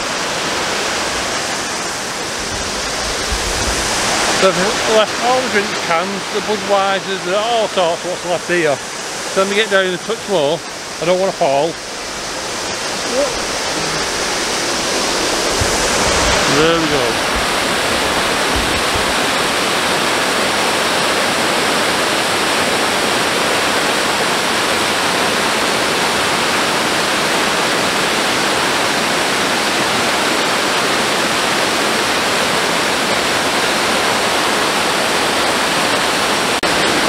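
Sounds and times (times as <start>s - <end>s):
waterfall rushing: 0.0s - 37.0s.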